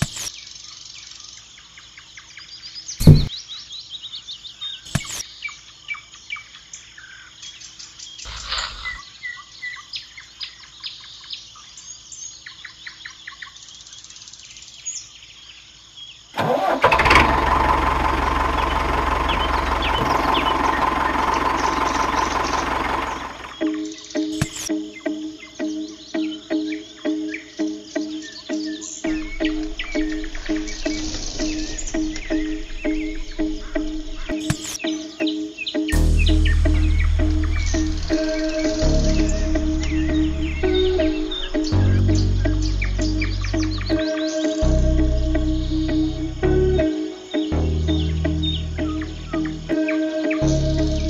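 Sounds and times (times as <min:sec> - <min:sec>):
birds chirping: 0:08.0 - 0:10.8, 0:16.6 - 0:51.0
toy truck engine running: 0:16.4 - 0:23.6.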